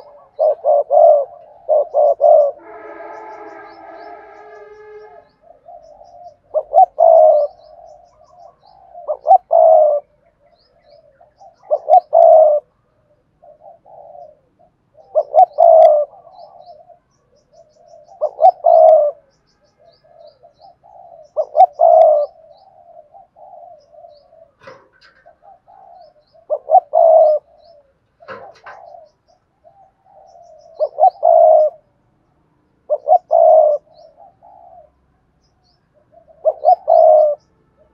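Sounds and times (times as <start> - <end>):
dove cooing: 0.0 - 31.9, 32.8 - 35.0, 35.9 - 37.9.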